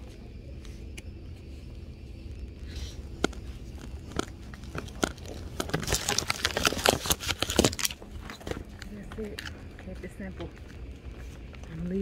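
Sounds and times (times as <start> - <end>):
plastic bags crinkling: 2.4 - 12.0.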